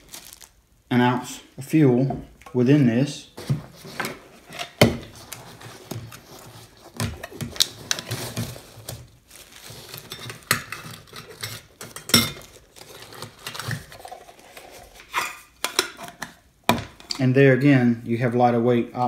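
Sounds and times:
plastic bag rustling: 0.0s - 0.9s, 3.2s - 15.1s
metal cookware clinking: 10.0s - 12.6s.

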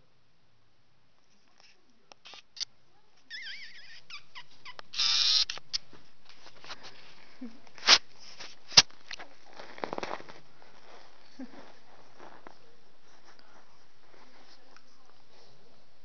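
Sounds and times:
puppy squealing: 3.3s - 5.6s
puppy squeaking: 3.3s - 5.8s.

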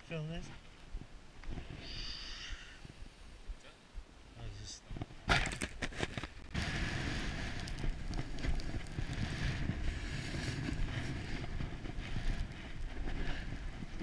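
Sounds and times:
snowboard sliding over snow: 5.9s - 14.0s
wind buffeting microphone: 6.4s - 14.0s.

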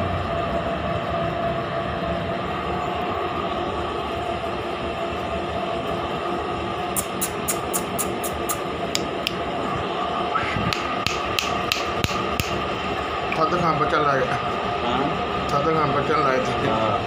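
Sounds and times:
steady background hum: 0.0s - 17.0s
sharp light clicks: 7.0s - 9.4s, 10.7s - 12.6s.

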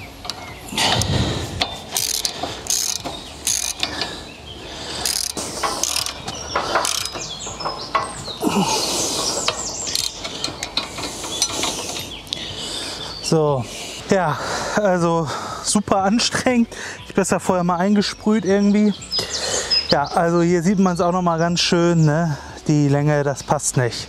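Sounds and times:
ratchet wrench clicking: 0.0s - 4.2s, 5.0s - 8.1s, 9.1s - 12.2s.

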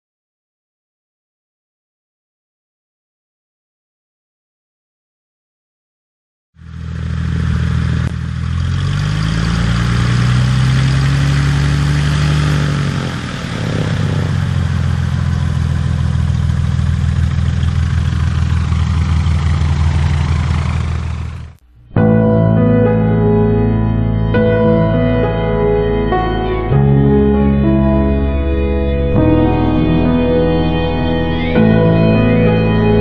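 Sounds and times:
light aircraft engine running: 6.6s - 21.6s.

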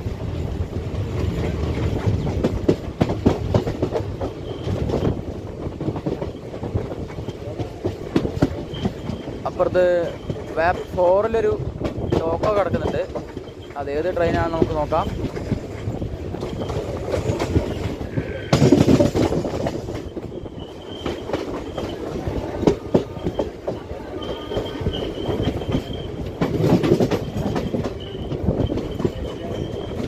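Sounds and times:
train wheels clattering over rail joints: 0.0s - 30.0s
high wheel squeal: 4.3s - 5.4s, 8.4s - 30.0s.

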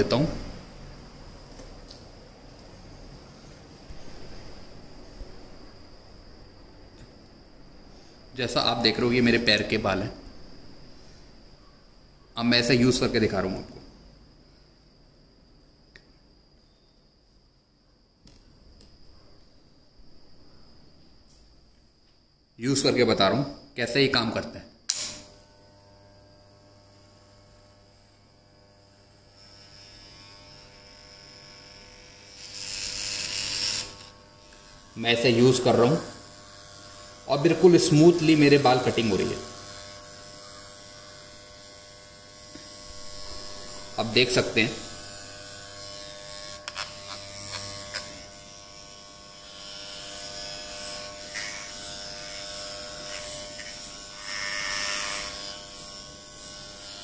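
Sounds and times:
clipper blades rasping through hair: 24.9s - 57.0s
electric hair clipper buzzing: 24.9s - 57.0s.

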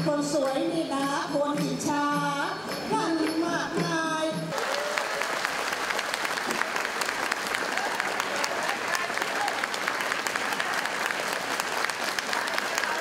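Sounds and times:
woman singing into microphone: 0.0s - 4.5s
audience applause: 4.5s - 13.0s.

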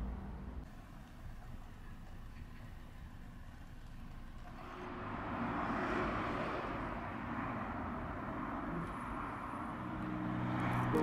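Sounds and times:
low traffic rumble: 0.0s - 11.0s
car passing by: 4.5s - 11.0s.

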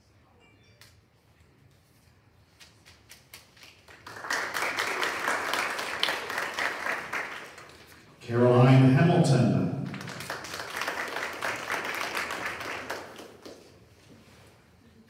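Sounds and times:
audience applauding: 3.6s - 8.2s, 9.6s - 13.8s.

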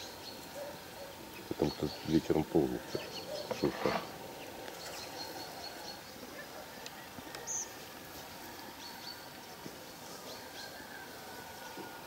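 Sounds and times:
bird chirp: 0.0s - 6.7s, 7.3s - 7.8s, 8.8s - 11.0s.

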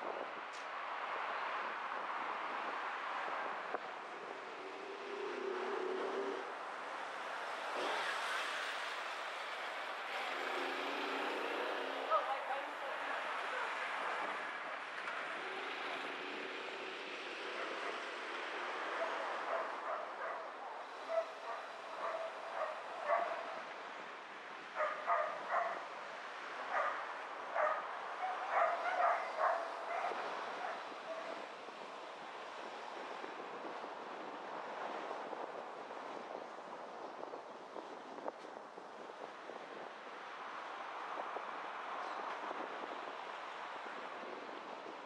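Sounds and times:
car road noise: 0.0s - 45.0s
dog barking: 19.0s - 23.6s, 24.8s - 25.8s, 26.7s - 27.0s, 27.6s - 31.4s.

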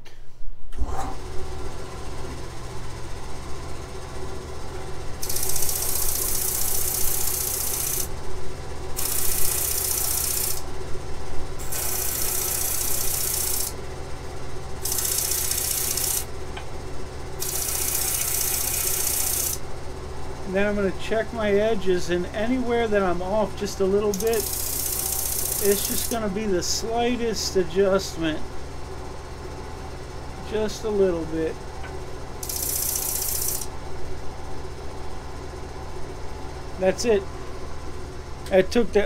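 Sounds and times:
lathe motor running: 3.2s - 28.4s, 32.2s - 33.8s.

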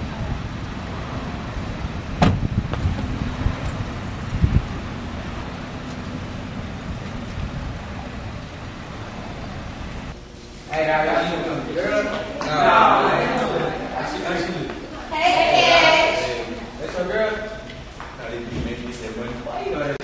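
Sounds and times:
car engine running: 0.0s - 10.2s
outdoor traffic noise: 0.0s - 20.0s
car door shutting: 2.2s - 3.1s
low thump: 2.2s - 3.1s.

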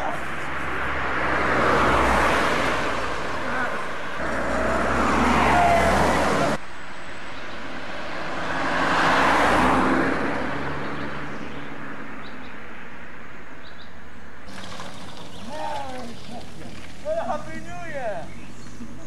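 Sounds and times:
road noise: 0.0s - 19.0s
car passing by: 0.1s - 6.6s, 7.2s - 12.1s.

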